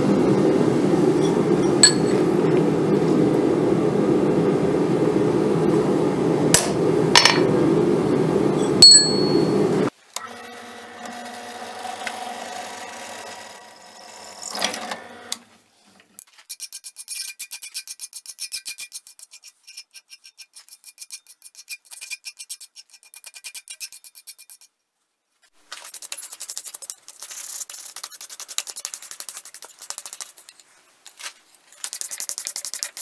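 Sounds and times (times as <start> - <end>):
hammer blows on steel anvil: 1.2 - 2.4, 8.8 - 9.7
drill press motor humming: 9.5 - 15.5
drill cutting through steel: 10.2 - 15.4.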